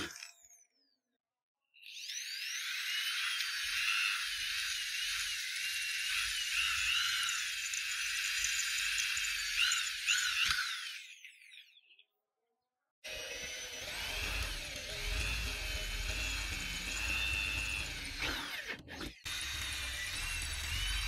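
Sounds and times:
electric drill boring through metal: 0.0 - 0.5, 1.8 - 11.6, 13.1 - 21.0.

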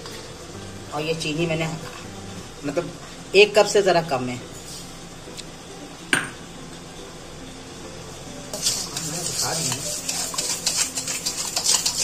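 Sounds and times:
hand whisk beating in metal bowl: 8.5 - 12.0.

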